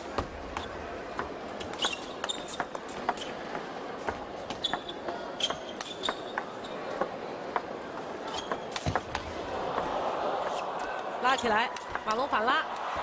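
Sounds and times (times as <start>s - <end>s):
shoes squeaking on floor: 1.6s - 7.1s, 8.2s - 9.1s.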